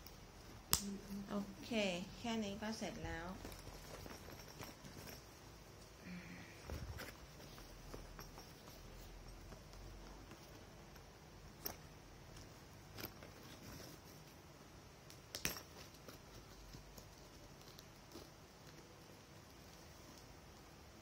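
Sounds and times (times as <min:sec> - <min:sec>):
backpack being handled: 0:03.0 - 0:05.9, 0:06.6 - 0:14.4.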